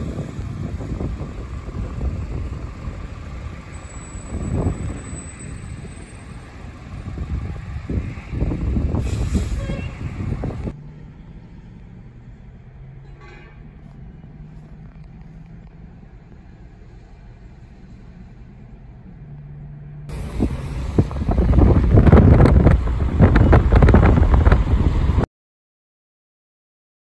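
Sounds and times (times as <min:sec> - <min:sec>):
wind buffeting microphone: 0:00.0 - 0:10.8, 0:20.1 - 0:25.3
vehicle engine hum: 0:00.0 - 0:25.3.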